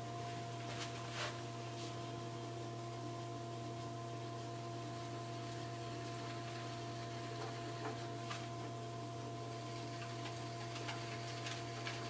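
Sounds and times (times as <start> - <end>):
pottery wheel motor humming: 0.0 - 12.0
tool shaving clay: 9.6 - 12.0
light ticks of clay trimmings: 9.8 - 12.0.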